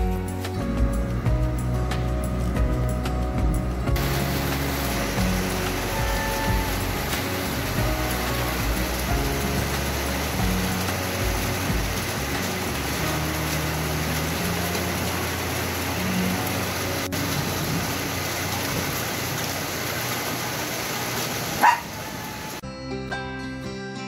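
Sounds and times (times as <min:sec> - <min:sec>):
low traffic rumble: 0:00.0 - 0:22.6
steady outdoor hiss: 0:00.0 - 0:22.6
dog yelping: 0:21.6 - 0:22.5.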